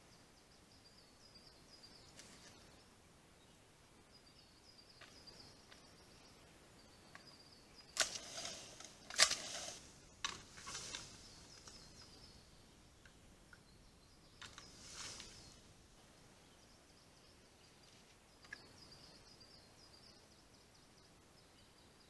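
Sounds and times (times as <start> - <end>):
bear scraping and knocking wood: 8.0 - 12.1, 14.4 - 15.6
faint high chirping: 16.3 - 22.0.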